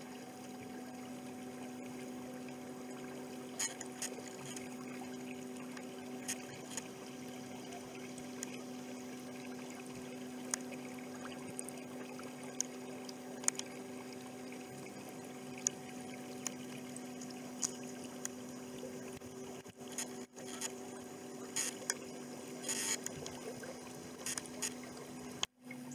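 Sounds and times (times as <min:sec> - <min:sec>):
outboard motor running: 0:00.0 - 0:25.9
faint ticks: 0:03.5 - 0:13.8, 0:14.6 - 0:20.8, 0:21.4 - 0:25.5.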